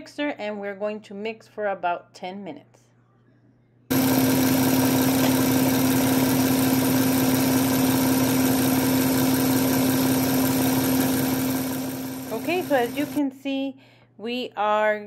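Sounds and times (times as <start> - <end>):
electric mixer whirring: 3.9 - 13.2.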